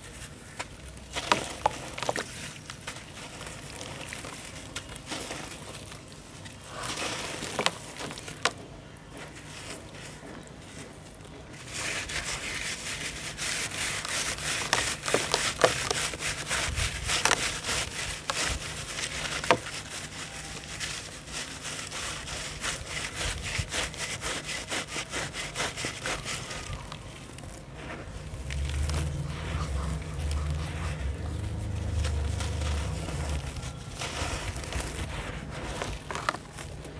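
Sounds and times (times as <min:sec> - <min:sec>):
wet sand ball crunching by hand: 0:00.0 - 0:36.9
low rumble: 0:27.2 - 0:36.9.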